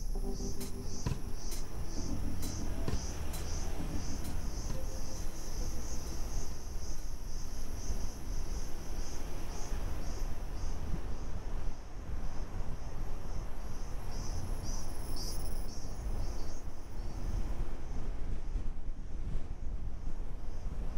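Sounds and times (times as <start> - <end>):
low continuous rumble: 0.0 - 9.3
insects chirping in pulses: 0.0 - 17.4.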